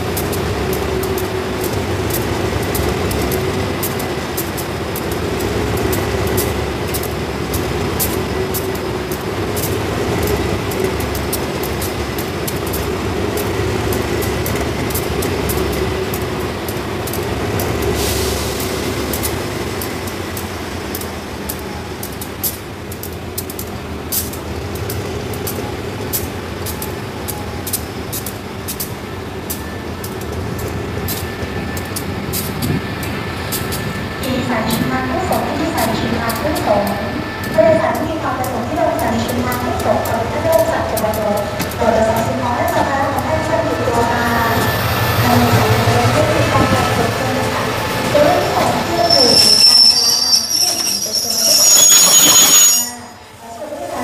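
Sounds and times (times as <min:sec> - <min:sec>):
locomotive engine droning: 0:00.0 - 0:54.0.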